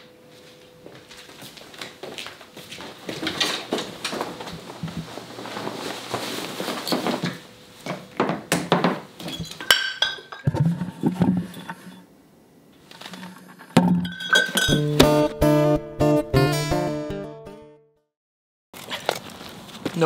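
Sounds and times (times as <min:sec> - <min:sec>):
cloth rustling: 0:01.1 - 0:07.5
glass clinking and ringing: 0:09.3 - 0:10.5, 0:13.9 - 0:15.0.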